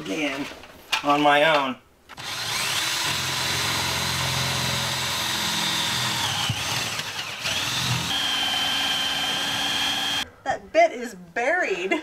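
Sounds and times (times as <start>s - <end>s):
power drill boring through wood: 2.2s - 10.2s.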